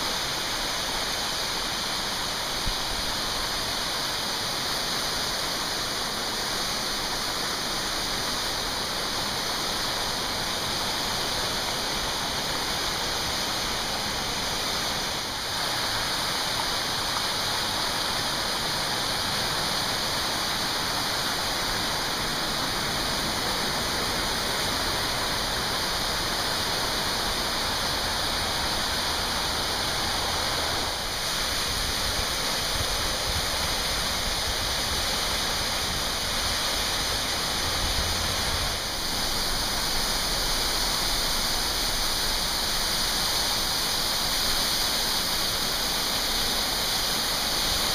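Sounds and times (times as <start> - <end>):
waterfall rushing: 0.0 - 47.9.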